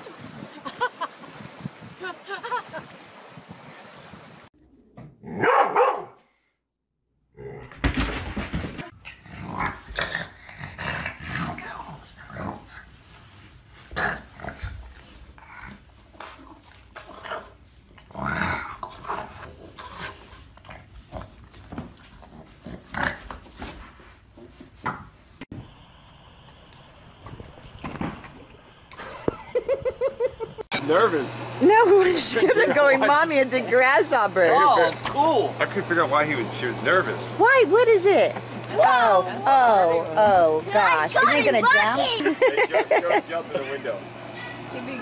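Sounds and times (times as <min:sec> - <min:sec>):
dogs barking: 0:05.3 - 0:06.2
dogs growling: 0:09.0 - 0:12.9, 0:13.8 - 0:23.4.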